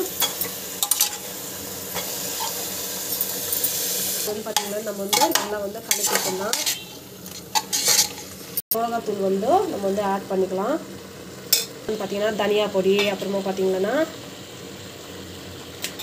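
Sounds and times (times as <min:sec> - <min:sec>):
food sizzling in hot oil: 0:00.0 - 0:16.0
ladle scraping and clinking on pot: 0:04.6 - 0:08.4.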